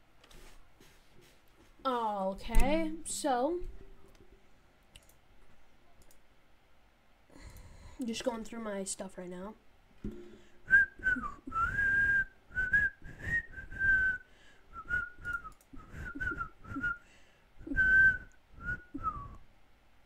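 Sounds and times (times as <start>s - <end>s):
person whistling: 10.6s - 17.0s, 17.6s - 19.4s.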